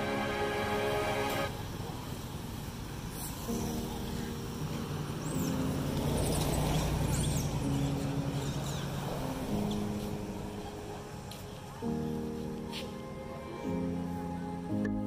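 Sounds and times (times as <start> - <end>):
background music of held notes: 0.0 - 1.6, 3.4 - 15.0
high chirping calls: 5.2 - 9.7.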